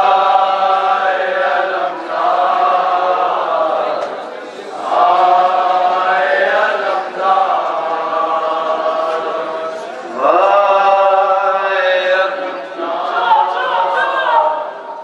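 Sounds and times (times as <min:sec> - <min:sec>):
men chanting in unison: 0:00.0 - 0:14.7
man singing a lament into a microphone: 0:04.8 - 0:14.6.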